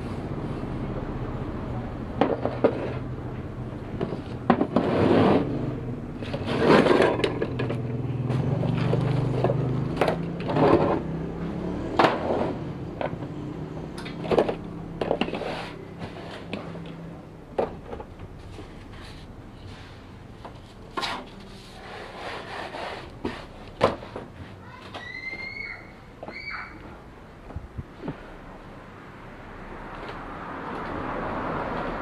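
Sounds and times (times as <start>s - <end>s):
metal scraping: 4.0s - 5.6s, 6.2s - 11.1s.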